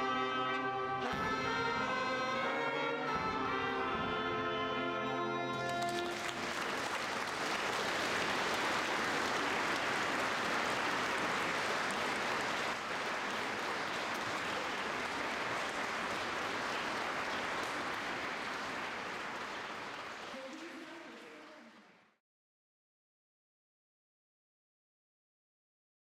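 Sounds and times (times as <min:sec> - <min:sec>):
audience applause: 0:05.5 - 0:22.2.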